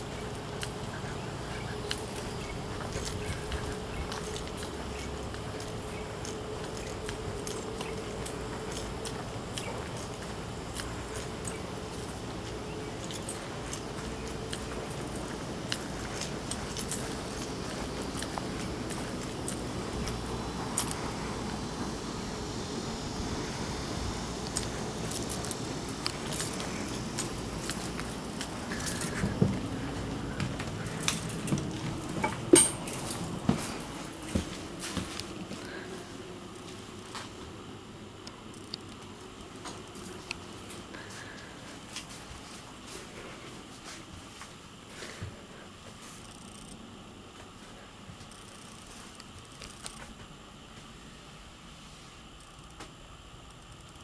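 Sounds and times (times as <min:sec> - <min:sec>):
keys jingling: 0:00.0 - 0:21.8, 0:24.2 - 0:35.5, 0:38.6 - 0:42.2
footsteps: 0:00.0 - 0:37.6, 0:38.9 - 0:46.6
steady low rumble: 0:00.0 - 0:38.6
sharp metallic clink: 0:32.2 - 0:33.3.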